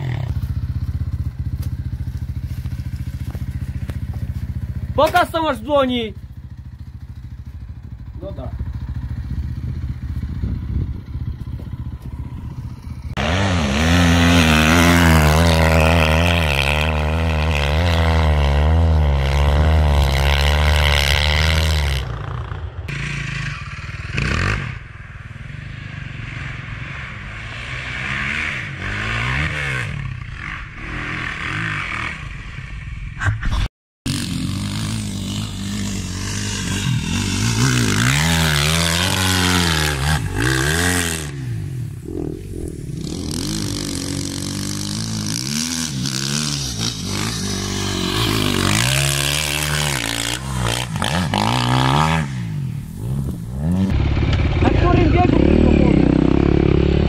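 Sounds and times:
motorcycle idling: 0:00.0 - 0:13.2, 0:52.2 - 0:57.0
dirt bikes riding on trails: 0:00.0 - 0:32.9, 0:34.1 - 0:57.0
engine revving hard: 0:13.1 - 0:22.1, 0:22.9 - 0:24.8, 0:34.1 - 0:57.0.

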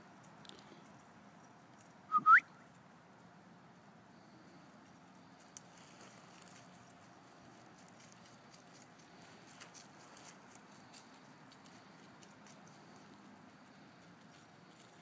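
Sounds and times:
faint rustling: 0:04.1 - 0:15.0.

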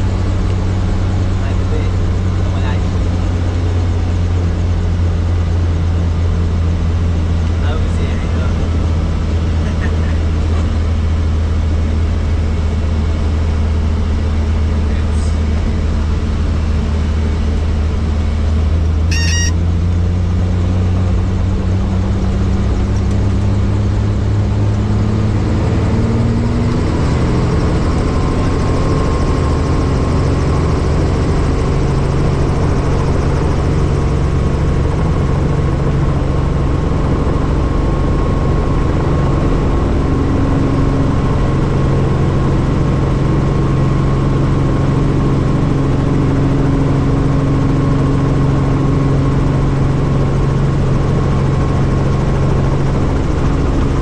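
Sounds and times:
helicopter engine and rotor: 0:00.0 - 0:54.0
short electronic beep: 0:19.1 - 0:19.6.

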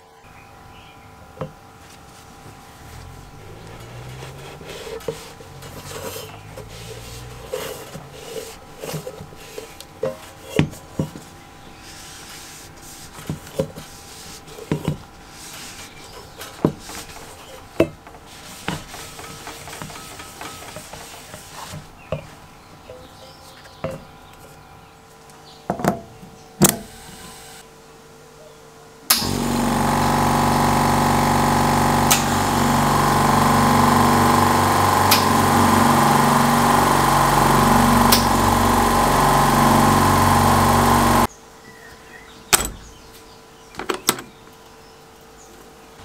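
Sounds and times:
cloth rag scrubbing metal: 0:01.8 - 0:22.5, 0:29.2 - 0:41.3
quick coupler clicks: 0:29.1 - 0:30.1, 0:31.8 - 0:32.8.

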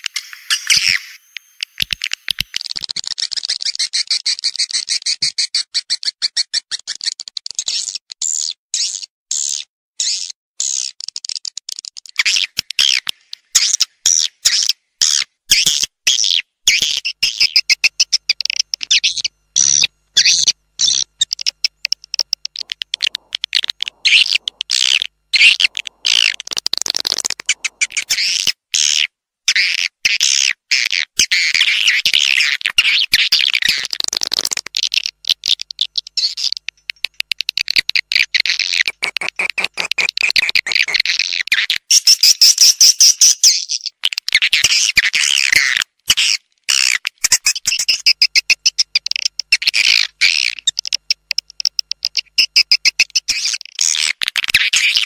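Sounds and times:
swiftlets twittering and chirping: 0:00.0 - 0:11.4, 0:12.2 - 0:55.0.

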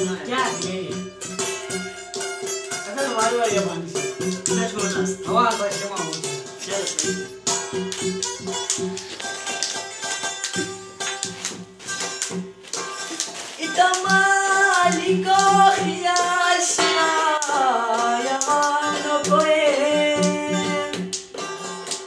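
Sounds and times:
hand drum beat on steel pan: 0:00.0 - 0:12.6, 0:14.0 - 0:17.4
plucked lute: 0:00.0 - 0:22.0
person singing: 0:13.6 - 0:21.2.

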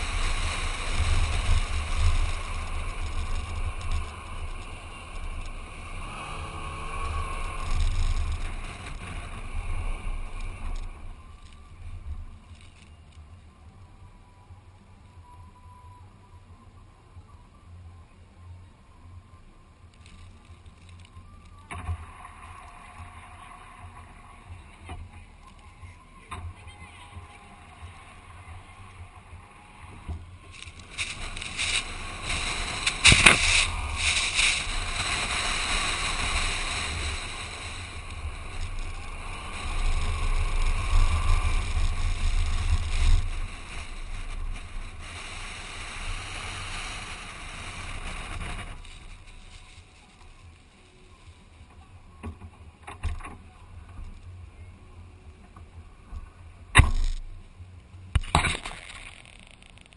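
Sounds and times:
wind rush on microphone: 0:00.0 - 0:12.5, 0:21.7 - 0:50.7
vehicle engine and tyre noise: 0:00.0 - 0:59.9.

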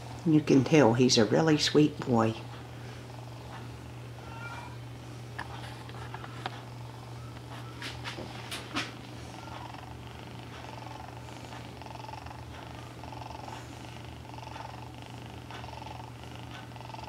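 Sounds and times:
kitten purring: 0:08.6 - 0:17.0.

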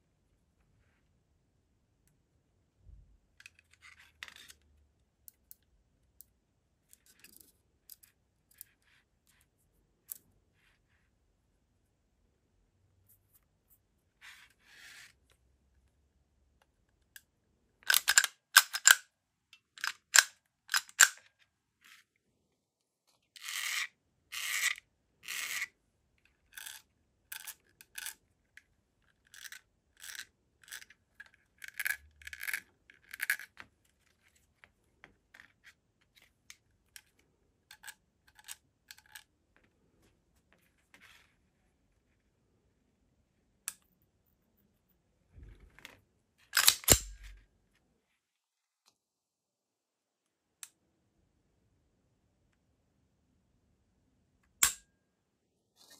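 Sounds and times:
pistol metallic clicks: 0:46.6 - 0:47.3.

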